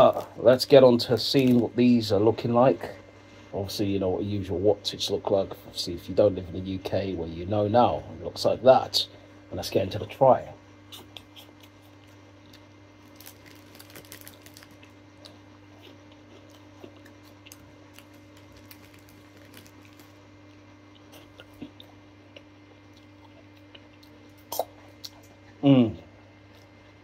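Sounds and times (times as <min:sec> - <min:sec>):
steady low hum: 0:00.0 - 0:27.0
man chewing crunchy snacks: 0:10.9 - 0:25.4.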